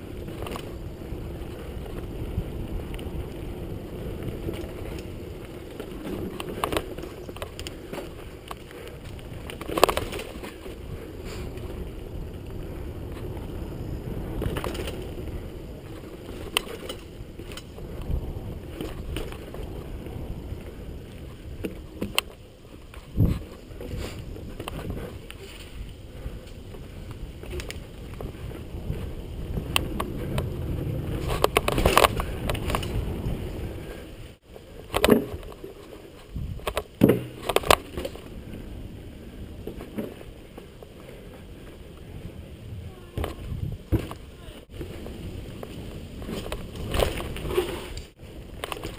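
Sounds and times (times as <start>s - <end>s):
bike rattling clicks: 0.0s - 42.3s, 42.9s - 48.9s
tyres rumbling on dirt: 0.0s - 48.9s
wind on microphone: 0.0s - 48.9s
bike knocking over bumps: 36.5s - 38.2s, 43.1s - 47.9s.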